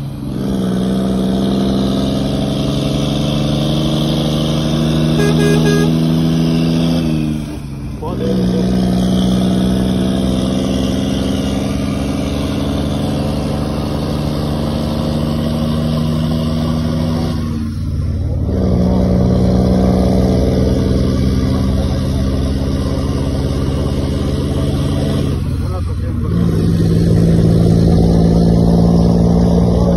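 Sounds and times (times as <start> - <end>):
truck diesel engine running: 5.0 - 29.9.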